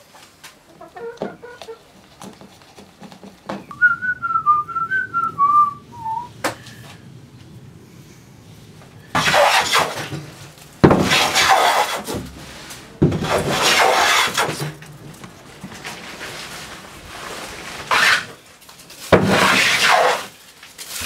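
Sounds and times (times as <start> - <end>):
hand plane shaving wood: 9.2 - 10.3, 10.9 - 12.3, 13.1 - 14.8, 17.2 - 18.4, 19.2 - 20.4.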